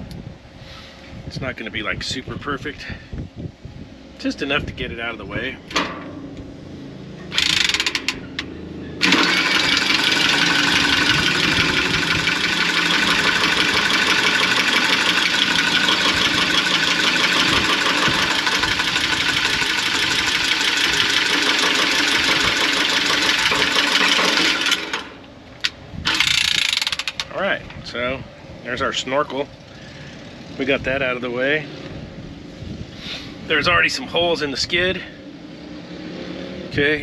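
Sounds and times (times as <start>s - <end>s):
power tool cutting copper pipe: 7.3s - 8.2s, 9.0s - 25.2s, 26.1s - 27.2s.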